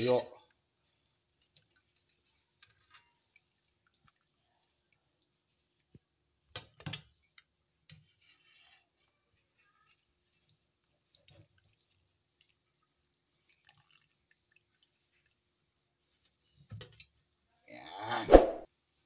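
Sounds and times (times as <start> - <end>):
broth dripping and splashing: 1.4 - 5.8, 10.2 - 16.3.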